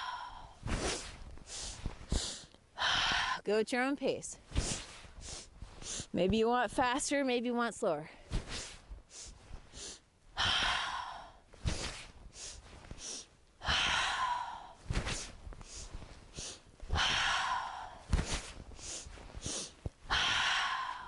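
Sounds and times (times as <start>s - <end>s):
woman sniffing through nose: 0.7s - 2.5s, 8.4s - 10.0s, 11.6s - 13.3s, 18.2s - 19.8s
woman exhaling forcefully: 9.8s - 11.9s, 13.6s - 15.3s, 16.4s - 18.5s, 19.4s - 21.0s.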